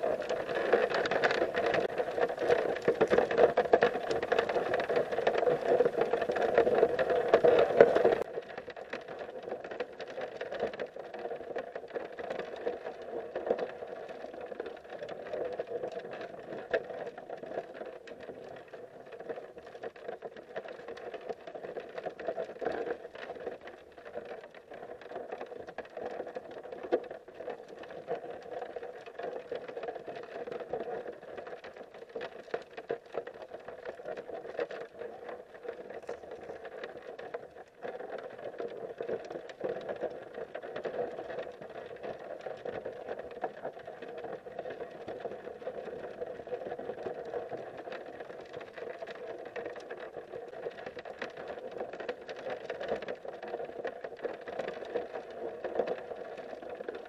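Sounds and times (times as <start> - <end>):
underwater creek rush: 0.0 - 8.3
small clicks and ticks: 0.0 - 57.0.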